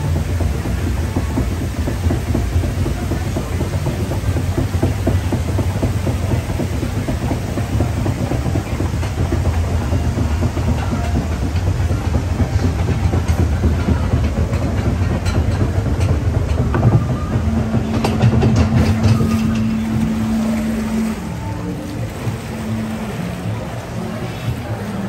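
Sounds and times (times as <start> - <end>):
conveyor lift clattering rumble: 0.0 - 25.0
steady tone: 15.6 - 25.0.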